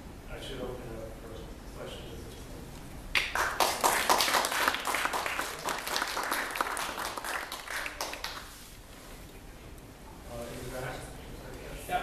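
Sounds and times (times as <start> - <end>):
audience applauding: 3.2 - 8.6.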